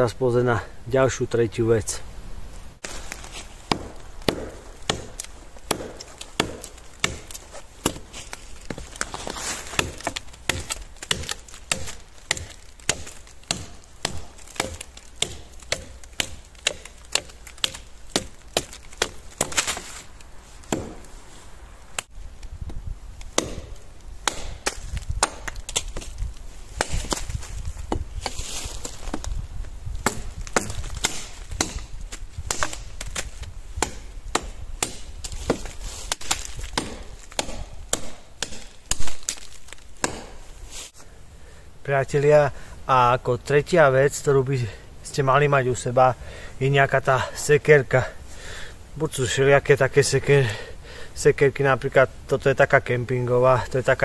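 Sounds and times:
rustling: 0:02.5 - 0:22.6, 0:23.2 - 0:34.2, 0:34.8 - 0:41.1
woody cracks and knocks: 0:02.8 - 0:20.1, 0:30.0 - 0:40.4.

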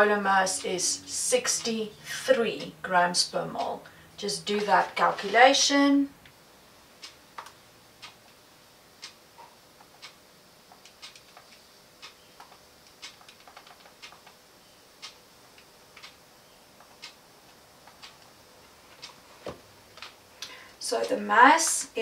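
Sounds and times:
clock ticking: 0:00.0 - 0:05.1, 0:07.0 - 0:08.3, 0:09.0 - 0:09.2, 0:09.9 - 0:10.2, 0:10.8 - 0:14.4, 0:15.0 - 0:16.2, 0:16.8 - 0:18.3
calculator keys clicking: 0:09.8 - 0:14.4, 0:15.0 - 0:16.2.

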